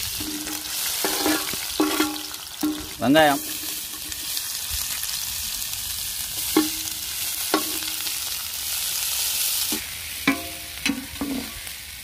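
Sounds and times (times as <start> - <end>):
onions sizzling in oil: 0.0 - 12.0
spatula striking pan: 0.2 - 3.7, 6.5 - 8.0, 10.2 - 11.5.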